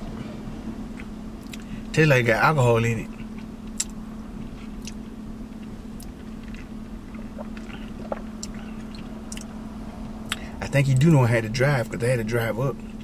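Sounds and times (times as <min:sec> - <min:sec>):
vehicle cab hum: 0:00.0 - 0:13.0
lip smacks: 0:00.9 - 0:01.7, 0:03.7 - 0:04.0, 0:04.7 - 0:05.0, 0:06.0 - 0:09.5, 0:10.2 - 0:10.5.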